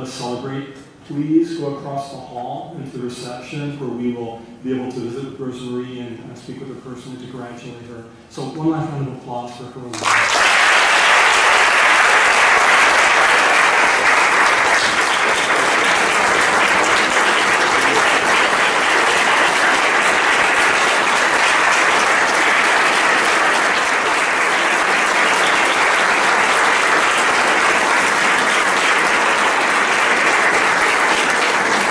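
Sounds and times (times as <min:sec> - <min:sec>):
audience applauding: 0:09.9 - 0:31.9.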